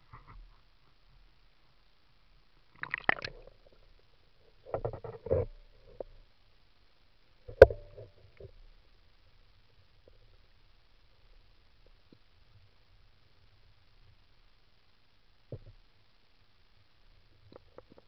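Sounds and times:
muffled splashing and gurgling: 2.8s - 3.6s.

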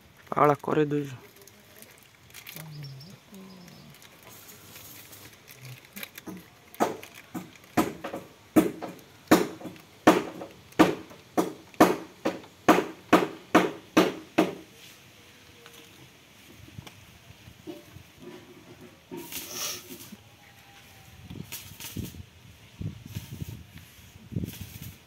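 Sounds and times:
hammer knocks on metal gearbox: 7.8s - 14.6s.

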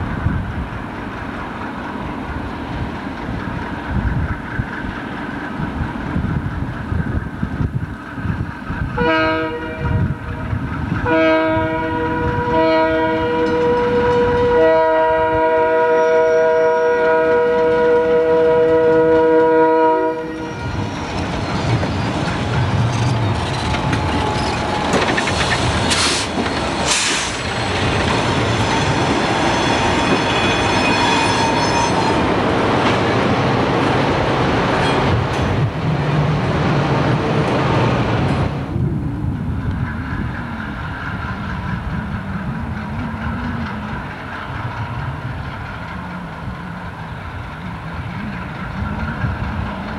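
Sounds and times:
locomotive engine noise: 0.0s - 49.9s
locomotive air horn blasts: 9.0s - 20.8s
wheels clicking over rail joints: 16.9s - 31.0s, 39.2s - 49.9s.

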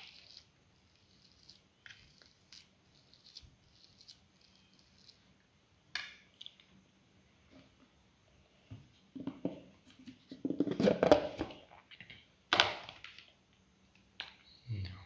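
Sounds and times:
spoon mashing potatoes: 0.0s - 6.7s.

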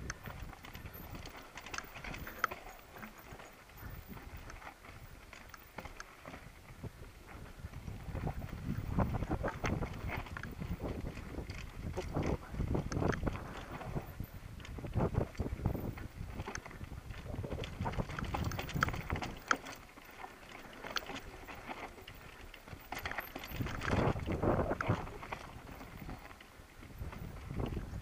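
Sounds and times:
bike rattling: 0.0s - 28.0s
tyres crunching over gravel: 0.0s - 28.0s
wind on microphone: 6.5s - 19.5s, 23.5s - 28.0s.

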